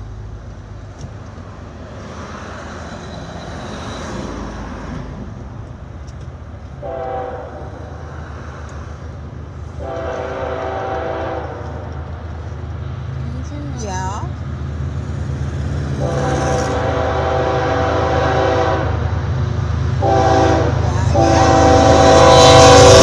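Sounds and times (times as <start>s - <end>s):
locomotive air horn blasts: 6.8s - 7.9s, 9.8s - 11.9s, 16.0s - 19.0s, 20.0s - 23.0s.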